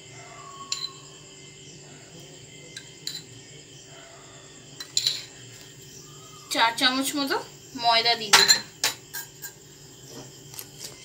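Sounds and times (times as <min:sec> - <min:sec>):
metal spoon clinking glass bowl: 0:00.6 - 0:01.0, 0:02.7 - 0:03.3, 0:04.8 - 0:05.3, 0:08.3 - 0:09.6.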